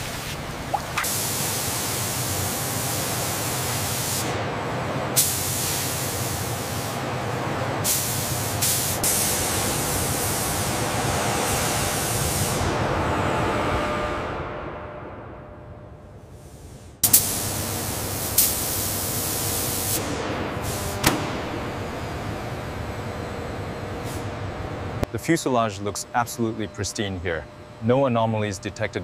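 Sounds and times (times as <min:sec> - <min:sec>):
high-pressure spray hissing: 0:17.0 - 0:20.0.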